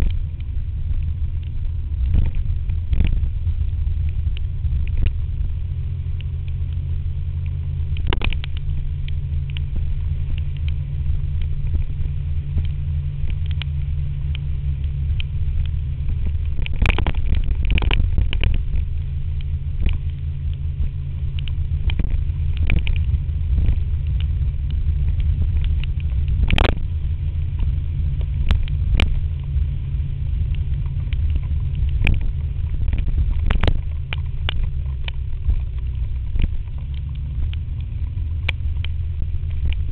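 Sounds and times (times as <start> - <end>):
faint steady engine tone: 0.0 - 39.9
wind rumbling on microphone: 0.0 - 39.9
sharp taps and clicks: 7.4 - 10.8, 12.6 - 14.5, 27.6 - 29.2, 30.4 - 39.9.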